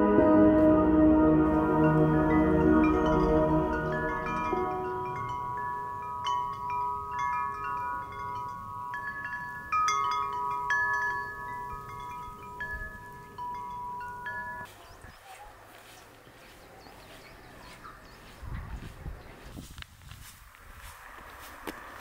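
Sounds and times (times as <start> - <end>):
metal wind chime ringing: 1.8 - 14.7.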